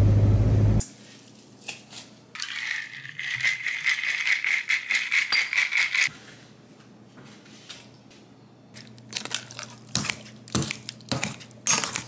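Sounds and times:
ice cubes rattling in a metal bowl: 0:02.4 - 0:06.1.

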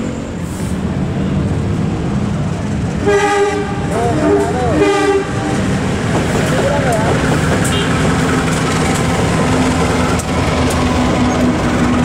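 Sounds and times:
train horn blast: 0:03.0 - 0:05.6.

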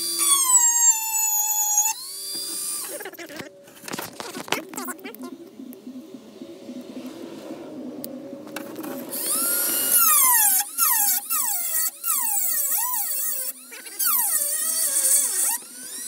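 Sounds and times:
rotary tool grinding metal: 0:00.0 - 0:03.5, 0:09.1 - 0:16.0.

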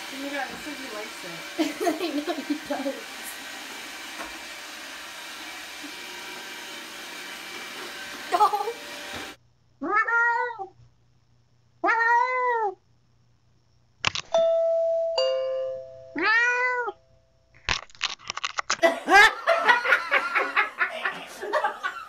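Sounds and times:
laughter: 0:01.6 - 0:02.8, 0:18.8 - 0:22.0
cat meowing: 0:09.8 - 0:10.8, 0:11.8 - 0:12.8, 0:16.2 - 0:17.0
two-note doorbell chime: 0:14.4 - 0:16.2.

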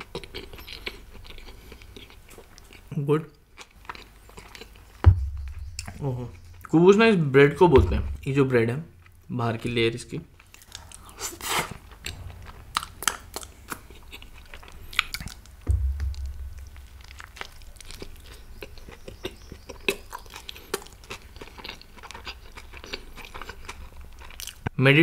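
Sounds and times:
close chewing and mouth smacks: 0:00.0 - 0:06.7, 0:10.4 - 0:12.3, 0:17.4 - 0:24.8
low thump: 0:05.0 - 0:06.7, 0:07.7 - 0:08.3, 0:12.0 - 0:14.8, 0:15.6 - 0:18.4.

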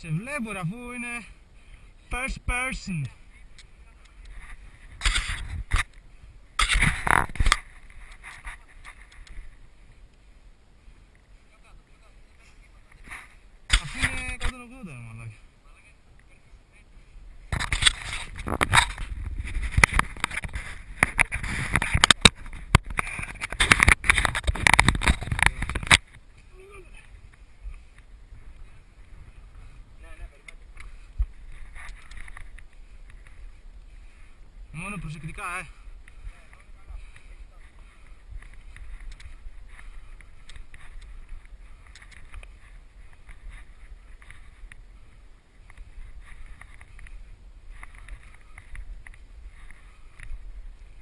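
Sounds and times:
wind rumbling on microphone: 0:01.4 - 0:14.6, 0:15.2 - 0:51.0
microphone handling rumble: 0:04.2 - 0:05.9, 0:06.5 - 0:09.6, 0:17.4 - 0:26.4
knocks and scrapes on camera: 0:06.6 - 0:09.3, 0:17.5 - 0:26.1.

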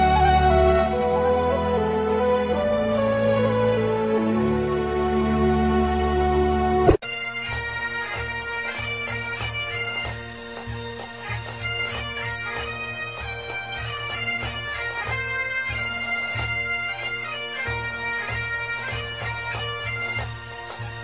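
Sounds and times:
bagpipes playing a tune: 0:06.9 - 0:21.0.

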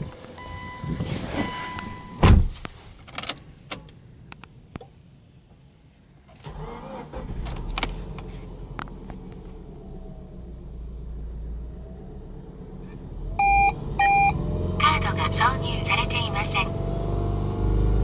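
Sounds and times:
car engine starting and idling: 0:00.0 - 0:18.0
loud thump: 0:02.2 - 0:02.6.

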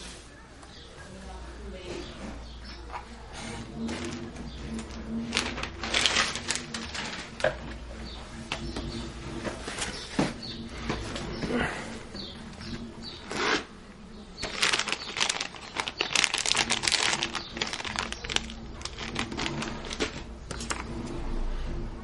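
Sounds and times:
plastic bags crinkling: 0:03.8 - 0:07.9, 0:13.2 - 0:20.9.

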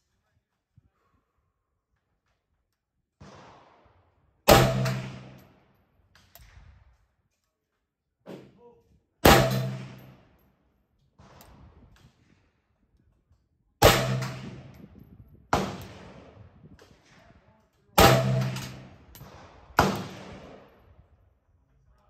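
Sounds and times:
rifle shots with echo: 0:03.2 - 0:05.7, 0:09.2 - 0:10.3, 0:13.8 - 0:14.9, 0:15.5 - 0:17.3, 0:18.0 - 0:21.0.

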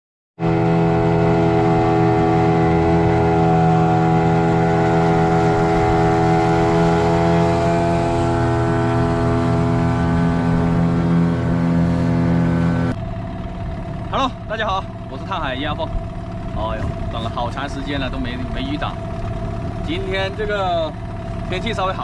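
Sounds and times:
outboard motor running: 0:00.4 - 0:22.0.

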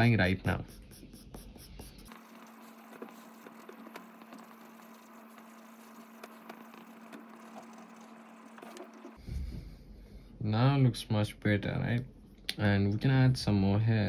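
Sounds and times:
charcoal pencil scratching on paper: 0:00.5 - 0:09.2.

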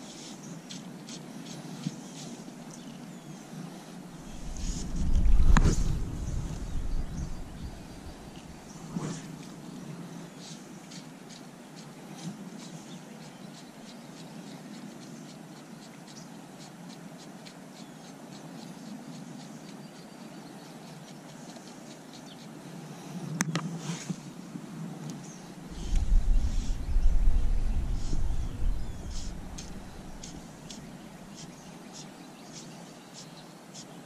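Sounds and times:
faint light ticks and chirps: 0:00.1 - 0:03.6, 0:10.4 - 0:22.6, 0:25.0 - 0:34.0
fly line swishing: 0:04.2 - 0:09.6, 0:25.6 - 0:31.6.

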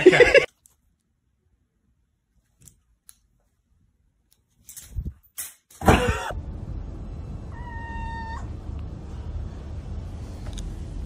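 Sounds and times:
low hum: 0:06.0 - 0:11.0
cat meowing: 0:07.5 - 0:08.5.

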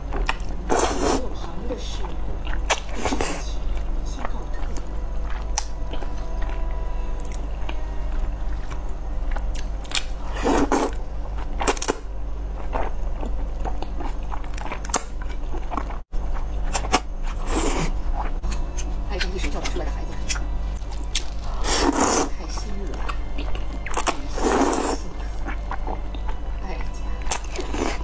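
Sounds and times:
slurping and chewing noodles: 0:00.1 - 0:01.3, 0:08.5 - 0:18.4, 0:20.3 - 0:22.3, 0:23.0 - 0:26.4, 0:27.2 - 0:28.0.

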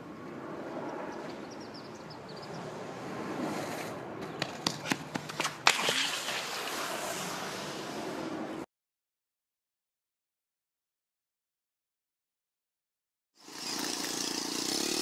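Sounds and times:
skateboard rolling on asphalt: 0:02.5 - 0:08.6, 0:13.4 - 0:15.0
skateboard clacks: 0:04.2 - 0:06.8.

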